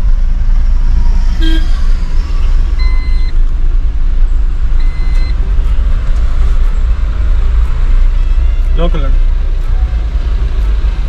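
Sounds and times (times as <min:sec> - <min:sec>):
van engine and road rumble: 0:00.0 - 0:11.0
short electronic beeps: 0:02.8 - 0:03.3, 0:04.8 - 0:05.8.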